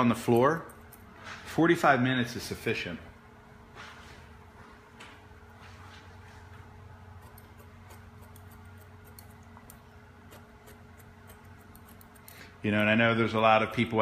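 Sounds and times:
scissors snipping hair: 7.2s - 12.5s.

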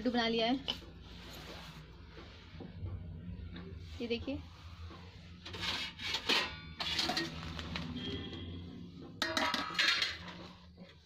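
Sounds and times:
steel bowl clinking and scraping: 5.4s - 8.4s, 9.1s - 10.7s.

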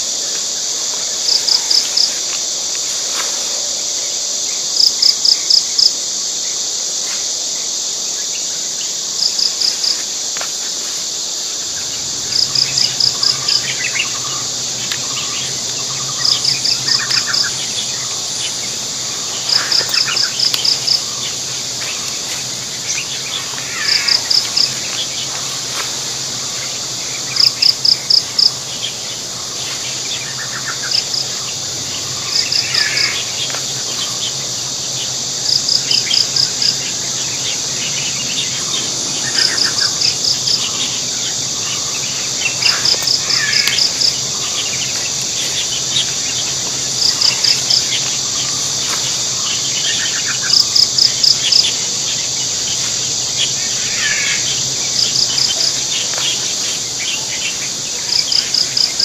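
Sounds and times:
high insect drone: 0.0s - 59.0s
rapid cricket-like chirps: 0.0s - 59.0s
birds calling: 36.0s - 58.8s.

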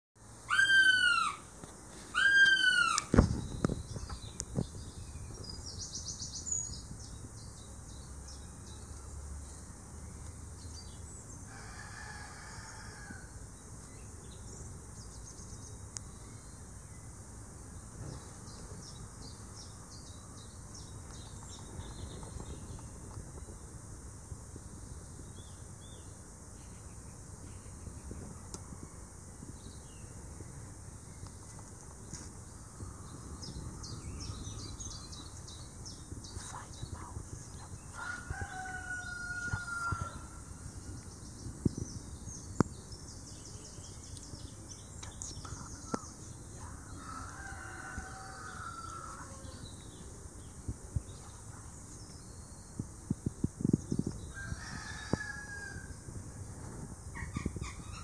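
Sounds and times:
faint small-bird chirps: 42.4s - 47.2s.

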